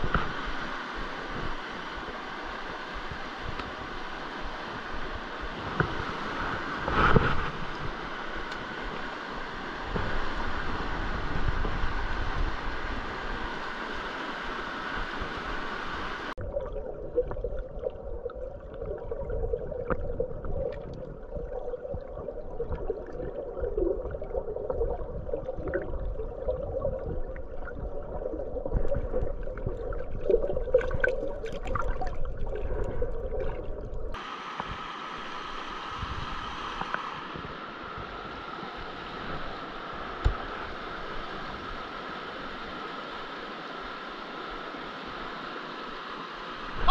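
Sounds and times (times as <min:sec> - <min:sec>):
muffled underwater water rush: 0:00.0 - 0:46.9.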